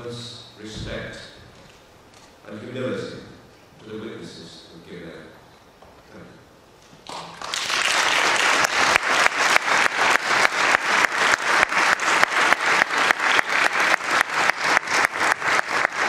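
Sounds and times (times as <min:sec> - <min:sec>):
audience applauding: 0:07.0 - 0:16.0.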